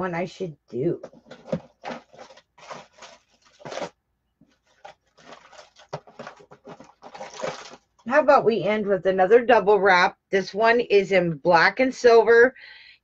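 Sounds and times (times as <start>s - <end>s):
jewelry rustling and clattering: 1.0s - 8.0s.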